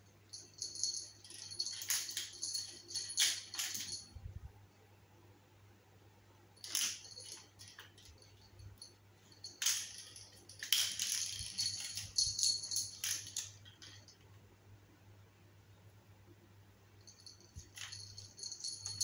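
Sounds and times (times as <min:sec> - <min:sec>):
collar bell jingling: 0:00.3 - 0:04.2, 0:06.6 - 0:14.1, 0:17.0 - 0:19.0.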